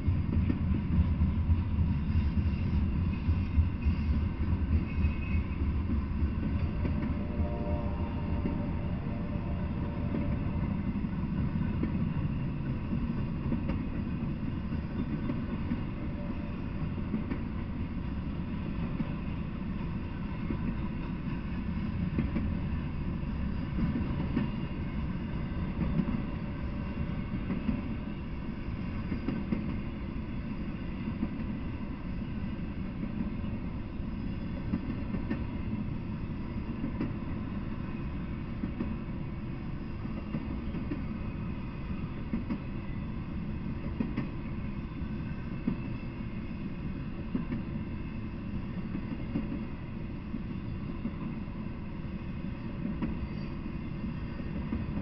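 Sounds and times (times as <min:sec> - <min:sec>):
freight train wheels rumbling: 0:00.0 - 0:55.0.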